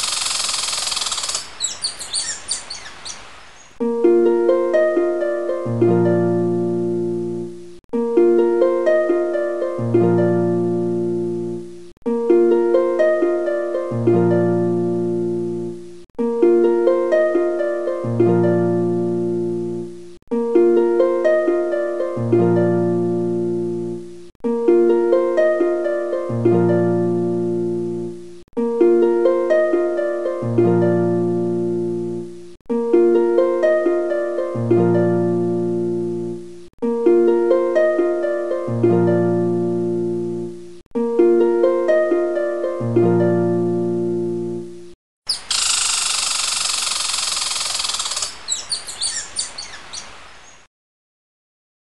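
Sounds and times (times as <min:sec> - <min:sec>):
harp-like plucked string melody: 0:03.8 - 0:45.0.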